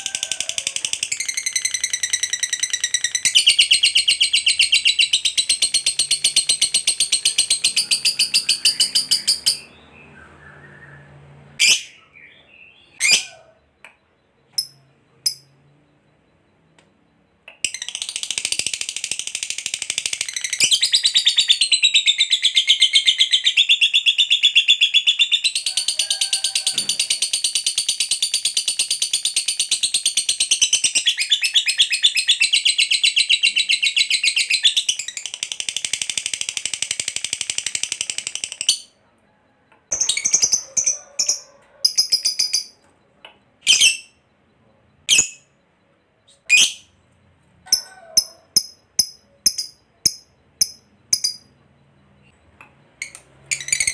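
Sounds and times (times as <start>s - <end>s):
bird trilling chatter: 0.0s - 9.9s, 11.6s - 13.7s.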